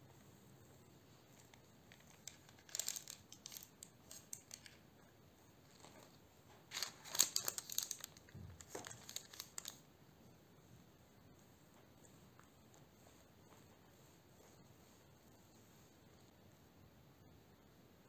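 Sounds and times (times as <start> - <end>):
baking paper crinkling and scraping: 1.4 - 4.9, 5.6 - 9.8.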